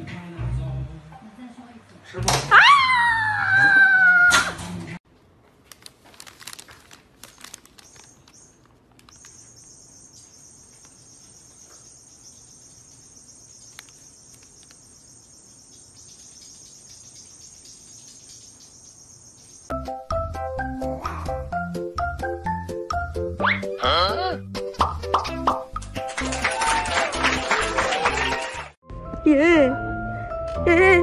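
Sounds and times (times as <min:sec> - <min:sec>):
paper bag rustling: 0:05.5 - 0:09.3.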